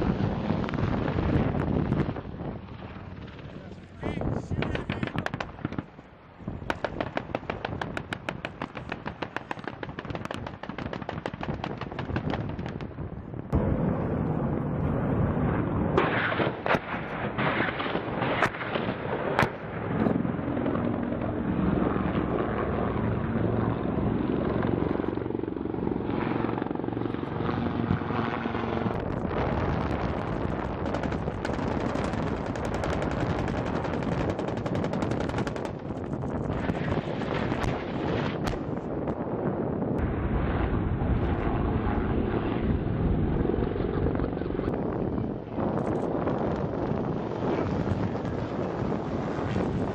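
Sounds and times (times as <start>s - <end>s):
helicopter flying overhead: 0.0s - 49.9s
sharp cracks: 4.6s - 6.0s, 6.7s - 13.0s, 30.5s - 38.7s
rapid automatic gunfire: 30.8s - 35.9s.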